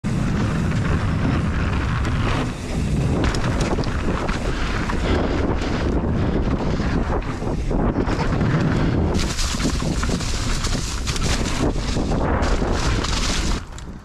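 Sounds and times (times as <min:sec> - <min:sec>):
wind buffeting microphone: 0:00.0 - 0:14.0.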